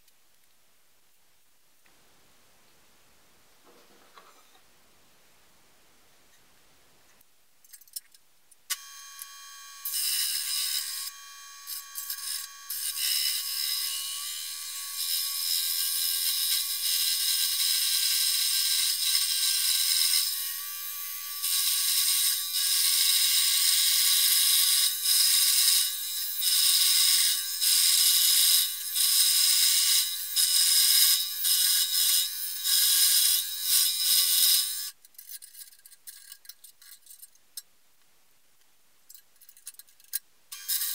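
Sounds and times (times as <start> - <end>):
scroll saw cutting metal: 8.7 - 37.2, 39.5 - 40.9.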